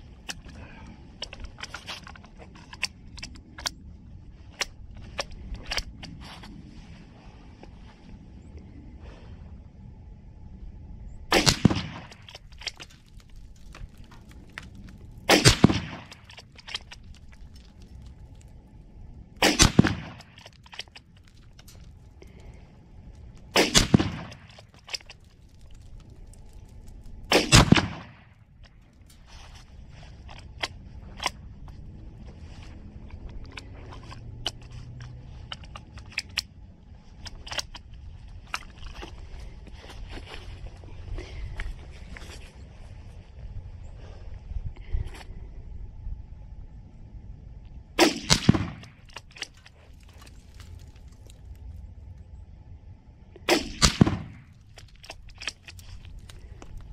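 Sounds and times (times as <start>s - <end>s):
wind rumble on microphone: 0.0s - 56.9s
rifle shots: 11.3s - 12.2s, 15.3s - 16.2s, 19.4s - 20.4s, 23.5s - 24.6s, 27.3s - 28.3s, 48.0s - 49.0s, 53.5s - 54.5s.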